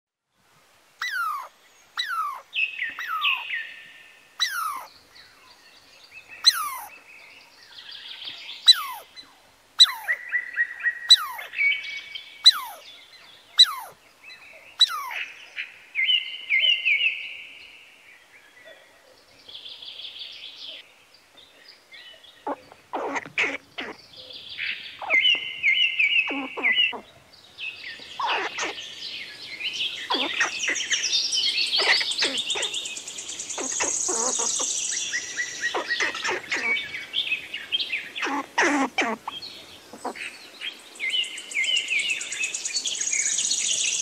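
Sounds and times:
birds chattering and trilling: 1.0 - 44.0
harsh low bird call: 8.7 - 9.1, 11.1 - 11.5, 14.8 - 15.3.

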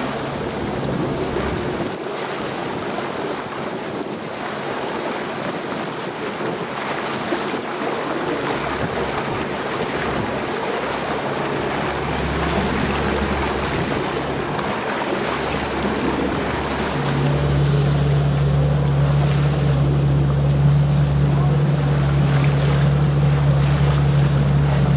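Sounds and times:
wind on microphone: 0.0 - 18.7, 24.1 - 24.9
boat motor low hum: 0.0 - 24.9
sea water splashing past boat: 0.0 - 24.9.

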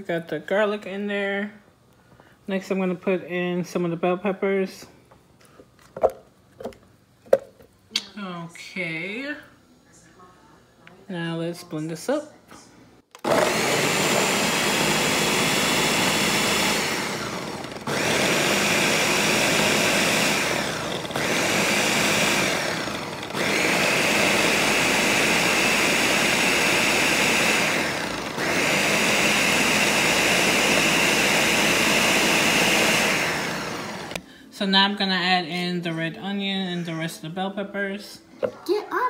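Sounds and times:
blender motor chopping: 13.2 - 34.2.

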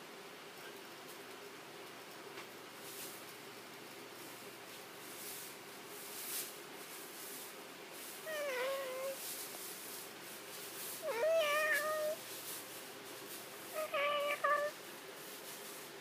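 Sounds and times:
cat meowing: 8.3 - 9.2, 11.0 - 12.2, 13.8 - 14.8.

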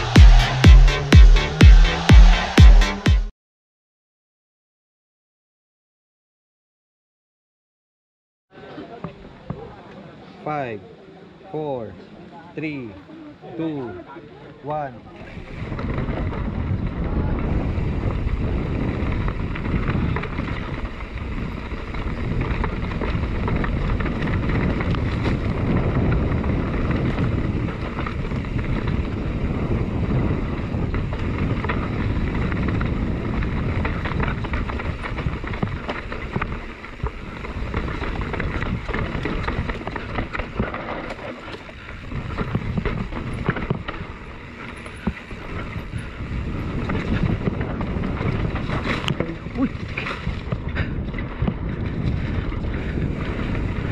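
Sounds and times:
wind buffeting microphone: 15.0 - 53.9
bike rattling over bumps: 15.2 - 53.9
tyres rumbling on dirt: 15.3 - 53.9.

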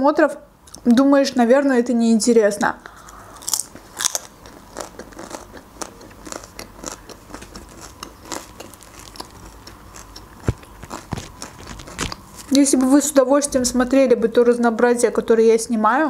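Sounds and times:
close chewing with crunches: 3.1 - 12.6
flatbread tearing: 6.2 - 12.6.

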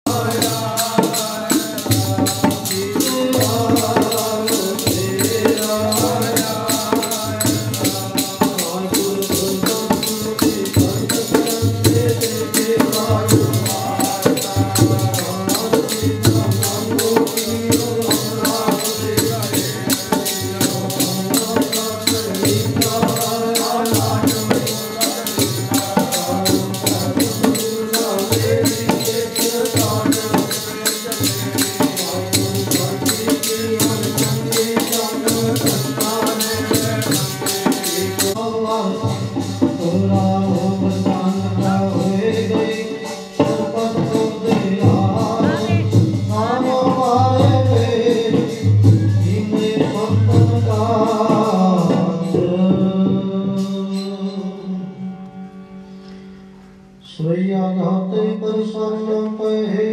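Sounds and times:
hand percussion rattle: 0.1 - 38.4
harmonium melody: 8.6 - 39.0.

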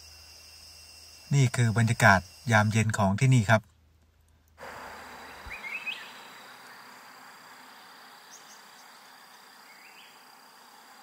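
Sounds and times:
high-pitched insect drone: 0.0 - 3.5, 4.6 - 11.0
soft background hiss: 0.0 - 11.0.

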